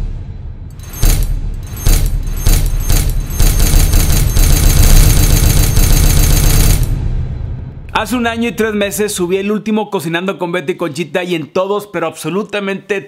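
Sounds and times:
booming sound effect hits: 6.8s - 9.3s.

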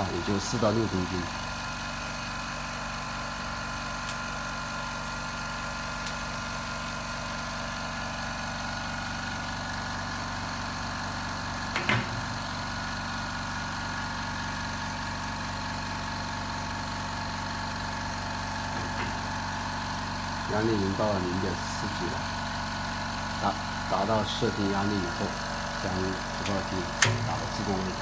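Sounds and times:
air compressor humming: 0.0s - 28.0s
thump: 11.8s - 12.2s.

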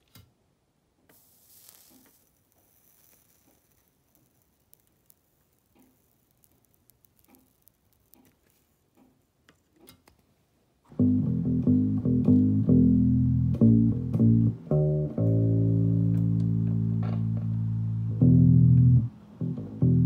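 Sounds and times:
faint clicks: 1.9s - 10.2s
electric bass guitar notes: 10.9s - 20.0s.

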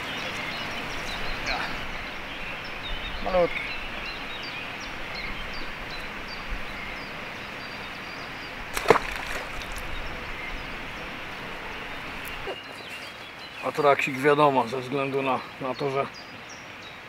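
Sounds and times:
fish splashing into water: 8.7s - 9.9s.

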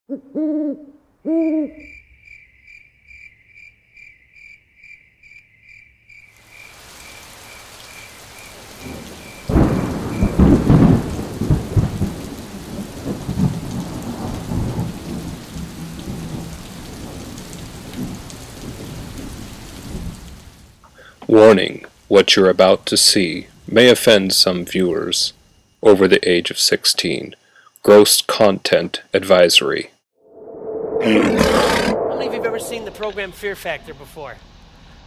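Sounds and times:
owl-like hoot: 0.1s - 1.9s
rain: 6.2s - 27.2s, 31.7s - 35.0s
thunder rumbling: 8.6s - 20.3s, 30.3s - 33.6s.

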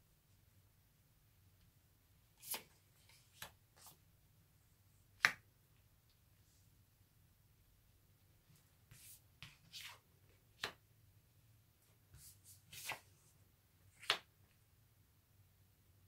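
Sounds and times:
cards sliding and tapping on cloth: 2.4s - 4.0s.

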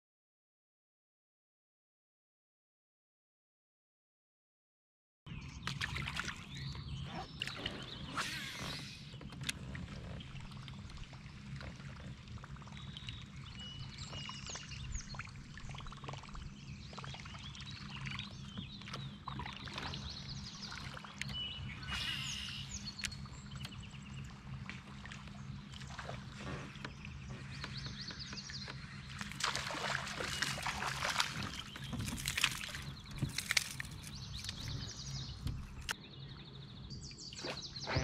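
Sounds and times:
steady low hum: 5.3s - 38.0s
birds chirping and singing: 6.4s - 10.7s, 16.3s - 24.5s, 25.4s - 38.0s
light water sounds: 8.8s - 36.0s.

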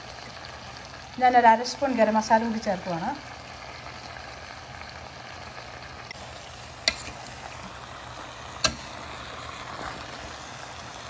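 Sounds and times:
low sizzle: 0.0s - 11.0s
spatula clanking against pan: 6.8s - 7.2s.

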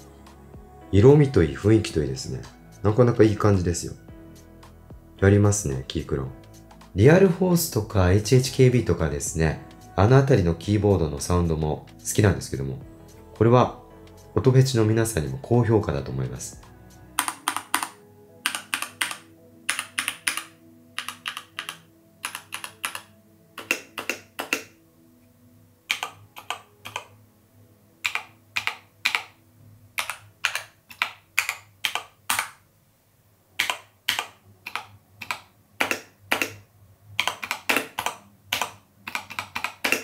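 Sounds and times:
mechanical keyboard typing: 17.2s - 24.8s, 25.9s - 27.1s, 28.0s - 29.4s, 30.0s - 32.6s, 33.6s - 36.6s, 37.2s - 40.0s.

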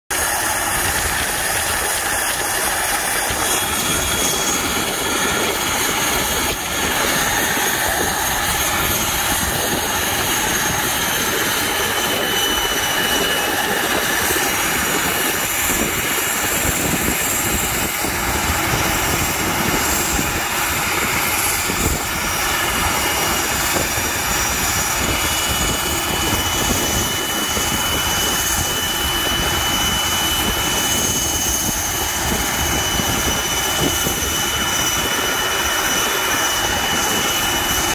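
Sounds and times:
turboprop engines running: 0.1s - 37.9s.

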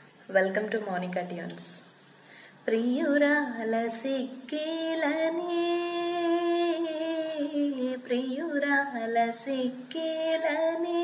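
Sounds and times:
woman singing unaccompanied: 2.6s - 11.0s.

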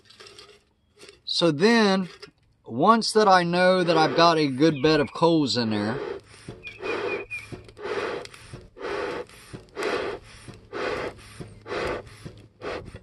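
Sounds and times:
bellows puffing air: 3.3s - 4.7s, 5.6s - 13.0s.

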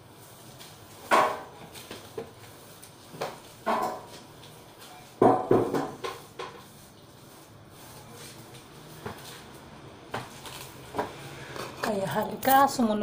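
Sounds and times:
broom sweeping stairs: 0.0s - 11.3s.

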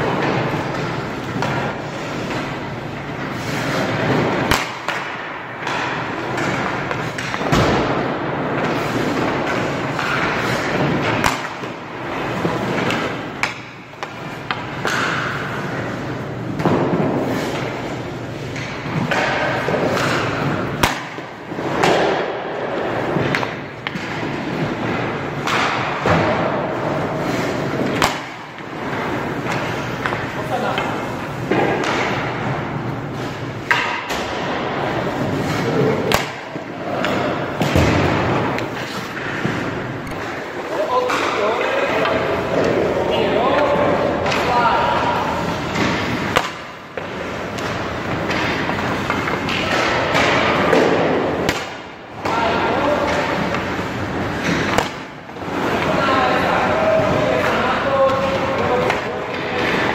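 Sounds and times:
skate blades scraping ice: 0.0s - 5.0s, 8.5s - 25.4s, 26.8s - 32.2s, 34.8s - 43.1s, 44.0s - 51.7s
pucks smacking goalie pads: 0.0s - 59.9s.

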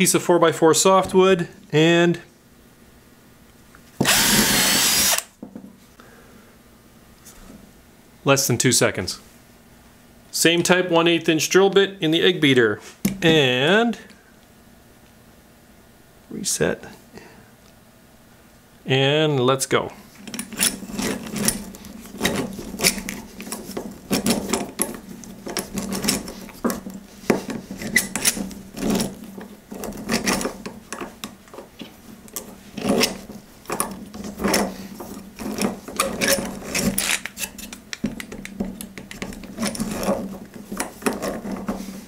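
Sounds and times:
drill bit rasping into wood: 4.0s - 5.3s
hand drill gears clattering: 4.0s - 5.3s.

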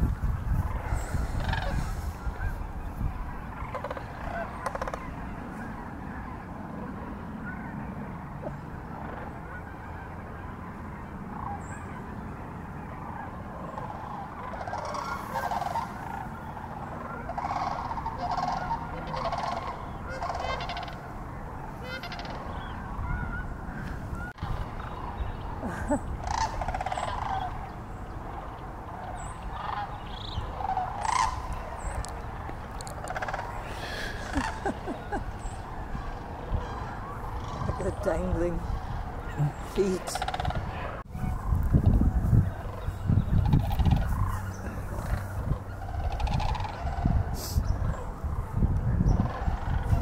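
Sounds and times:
cranes honking calls: 0.0s - 50.0s.

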